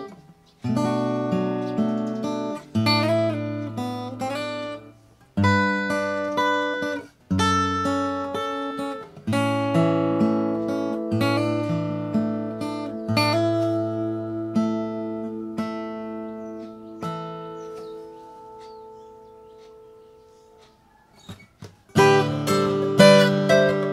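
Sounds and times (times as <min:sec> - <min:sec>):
acoustic guitar playing: 0:00.0 - 0:23.9.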